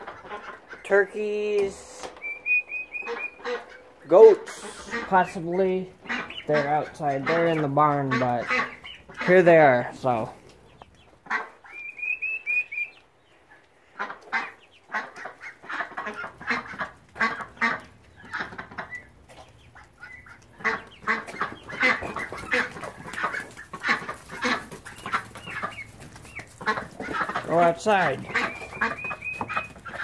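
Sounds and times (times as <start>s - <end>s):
ducks quacking: 0.0s - 30.0s
high peeps: 2.1s - 3.4s.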